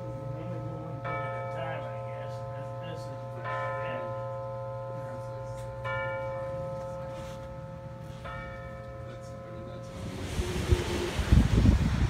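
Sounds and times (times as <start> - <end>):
bell chimes ringing: 0.0 - 10.2.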